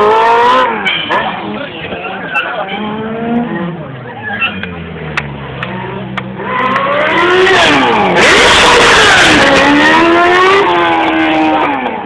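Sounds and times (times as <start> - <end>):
motorcycle engine revving: 2.8 - 12.0.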